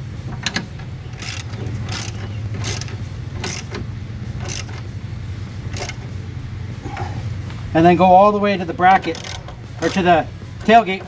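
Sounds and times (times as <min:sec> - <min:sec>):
steady low hum: 0:00.0 - 0:11.0
ratchet pawl clicks: 0:00.5 - 0:03.8, 0:04.4 - 0:04.9, 0:05.7 - 0:06.0, 0:09.0 - 0:11.0.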